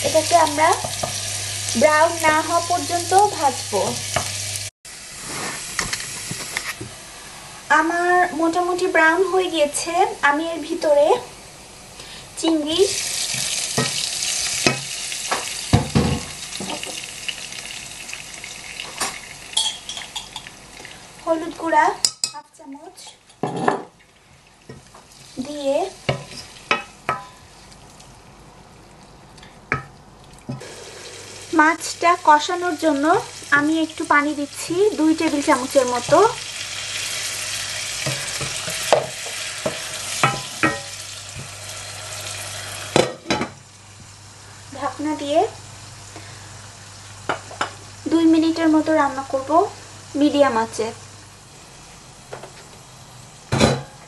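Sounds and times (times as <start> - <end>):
shrimp sizzling in hot oil: 0.0 - 6.8, 8.8 - 23.5, 24.5 - 28.0, 30.5 - 51.9
spatula scraping and knocking pan: 26.1 - 27.4, 38.0 - 41.6
water hissing in oil: 30.5 - 43.0.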